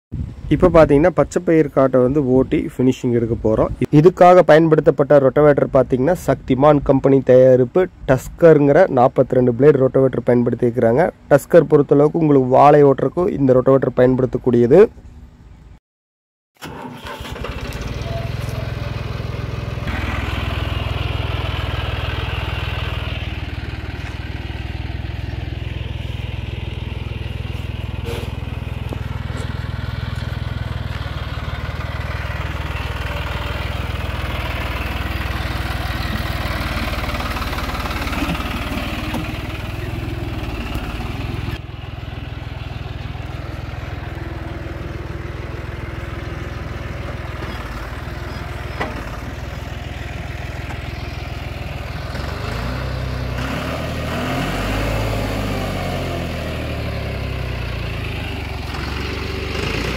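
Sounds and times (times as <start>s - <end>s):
tractor diesel engine running: 16.6s - 59.9s.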